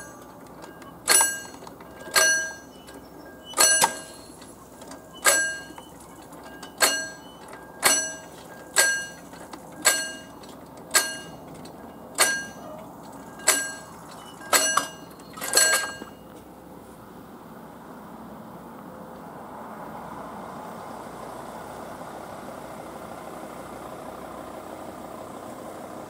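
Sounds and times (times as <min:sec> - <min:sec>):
level crossing bell ringing: 0:00.0 - 0:16.4.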